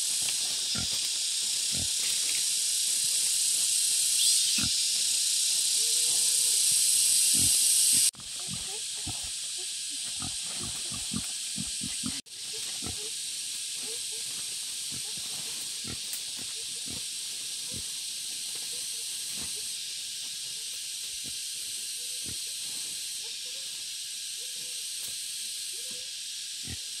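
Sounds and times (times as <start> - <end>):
high-pitched insect drone: 0.0 - 27.0.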